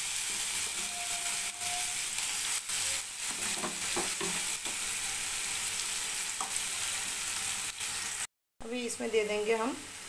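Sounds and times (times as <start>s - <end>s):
paste sizzling in hot oil: 0.0s - 8.3s
spatula scraping a pan: 0.2s - 5.2s.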